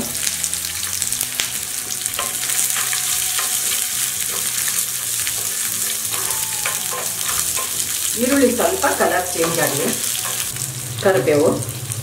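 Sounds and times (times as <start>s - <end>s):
food sizzling in hot oil: 0.0s - 12.0s
steel spoon scraping a pan: 1.8s - 10.6s.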